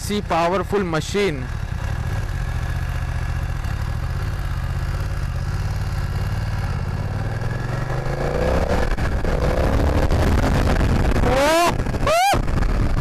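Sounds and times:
motorcycle engine revving: 1.4 - 13.0.

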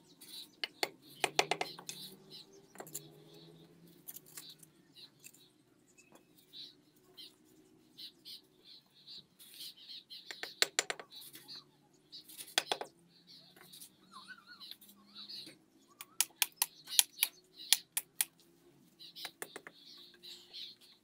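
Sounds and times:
small birds chirping: 0.0 - 21.0
hammer tapping bricks: 0.6 - 2.0, 10.3 - 11.2, 12.4 - 12.9, 19.2 - 19.8.

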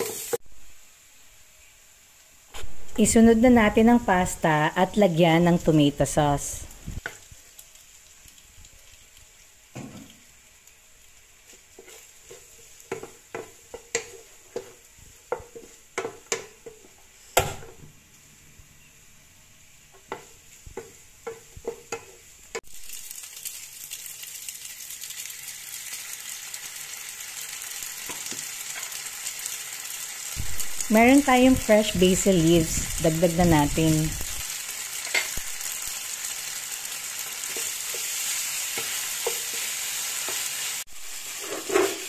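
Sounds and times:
sauce sizzling in a hot pan: 0.0 - 18.1, 18.9 - 42.0
wooden spatula scraping a pan: 11.4 - 17.3, 41.2 - 42.0.

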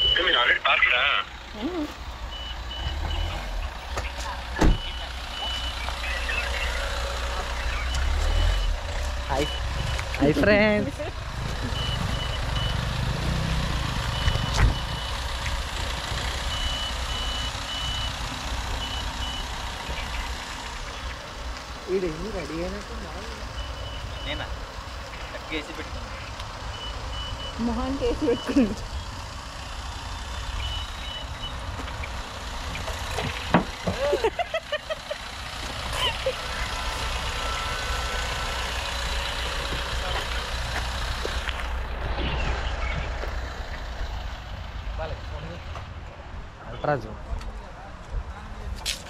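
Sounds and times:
faint high beeps: 0.0 - 0.8, 1.7 - 10.6
reversing beeper: 0.0 - 10.8, 11.6 - 15.3, 16.4 - 20.3, 23.5 - 24.6, 26.7 - 28.8, 30.6 - 31.7, 36.3 - 39.2
car rumbling: 0.0 - 49.0.

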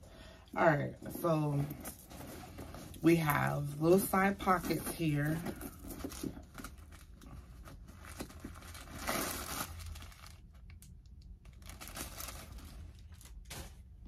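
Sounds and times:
packing paper rustling: 4.2 - 14.0.

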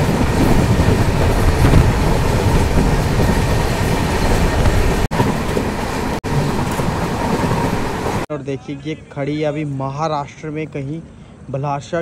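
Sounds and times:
train wheels on rails: 0.0 - 8.3.

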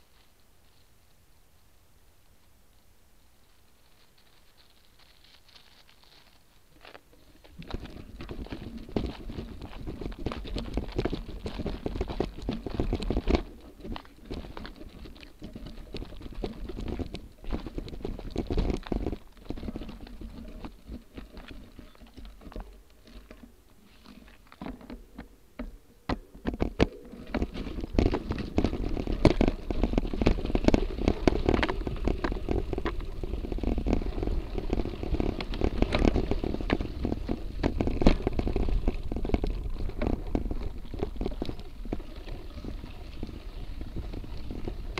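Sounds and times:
bike tyres crunching on stones: 3.4 - 25.4, 26.2 - 44.9.

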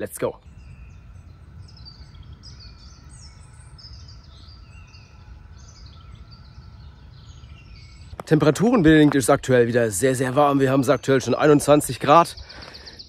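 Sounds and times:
songbirds chirping and singing: 0.0 - 13.0
low rumble: 0.4 - 10.2.

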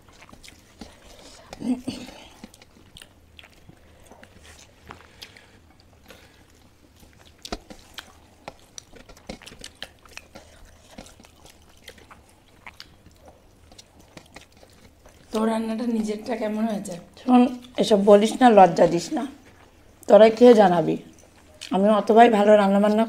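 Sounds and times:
chewing with wet mouth smacks: 0.0 - 18.4.

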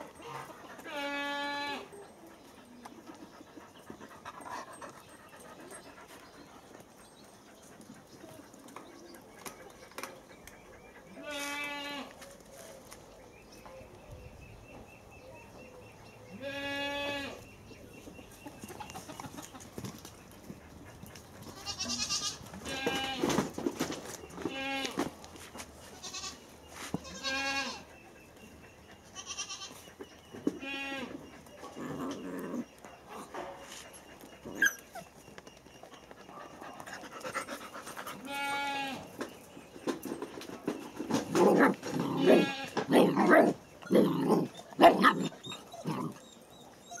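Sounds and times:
puppy and cat play-fighting: 0.0 - 13.0, 27.0 - 39.1, 40.0 - 47.0
drawn-out animal calls: 41.8 - 42.9.

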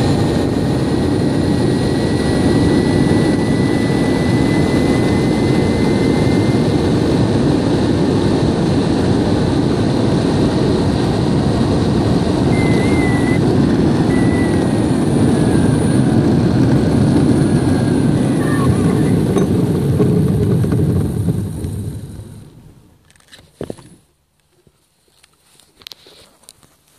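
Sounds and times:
faint high whine: 0.0 - 8.3, 11.6 - 23.1
wheels rolling over asphalt: 10.3 - 24.0.

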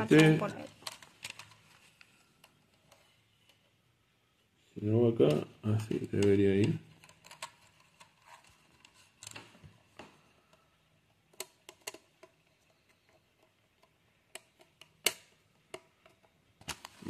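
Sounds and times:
plastic pieces clicking together: 0.0 - 1.7, 6.0 - 9.4, 11.3 - 16.9.

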